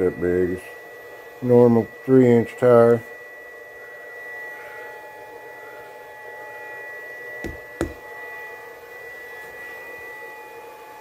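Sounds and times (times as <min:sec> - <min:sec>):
high-pitched whine and hum: 0:00.0 - 0:11.0
sharp knocks: 0:07.4 - 0:08.0.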